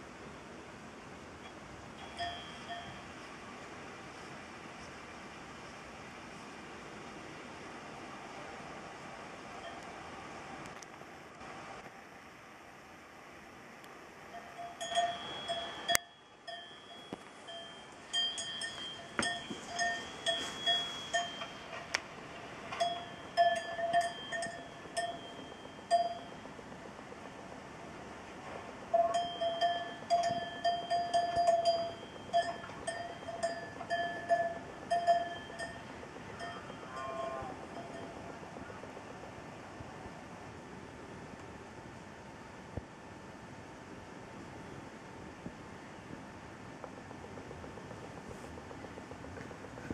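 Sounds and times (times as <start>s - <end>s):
metal livestock bell clanking: 2.0s - 3.1s, 14.4s - 21.9s, 22.7s - 26.3s, 29.0s - 38.2s.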